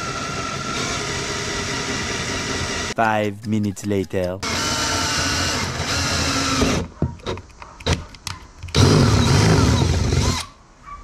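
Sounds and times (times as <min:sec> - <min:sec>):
cordless drill boring plastic: 0:00.0 - 0:02.9, 0:04.4 - 0:06.8, 0:08.7 - 0:10.5.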